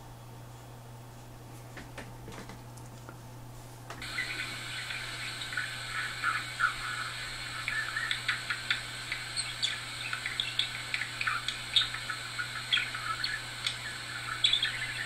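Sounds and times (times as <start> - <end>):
steady low hum: 0.0 - 15.0
budgerigar chirping: 4.0 - 15.0.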